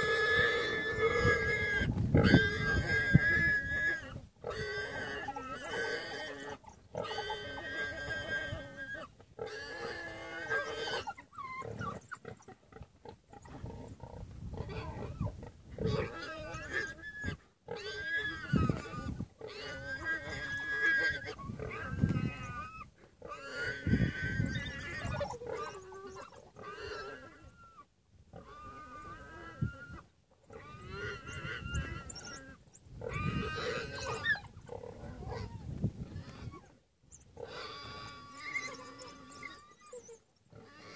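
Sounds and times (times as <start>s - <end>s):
warthog squealing: 0.0s - 40.9s.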